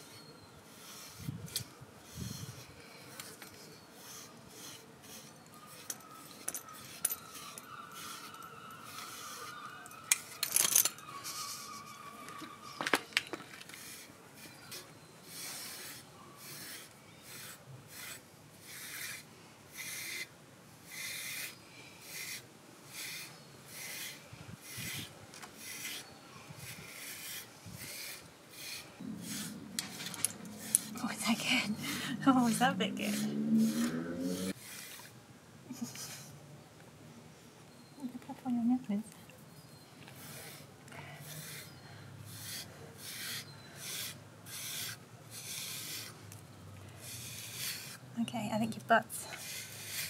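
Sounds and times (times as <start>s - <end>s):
brush raking through dog fur: 0.7s - 9.8s, 21.2s - 35.2s.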